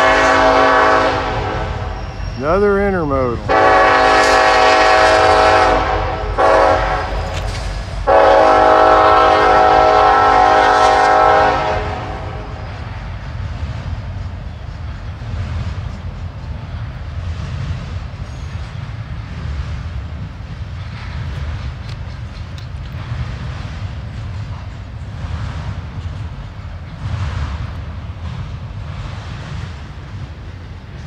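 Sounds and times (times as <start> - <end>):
locomotive air horn blasts: 0.0 - 7.4, 8.0 - 12.6
freight cars rumbling and clattering: 1.6 - 3.6, 12.2 - 31.0.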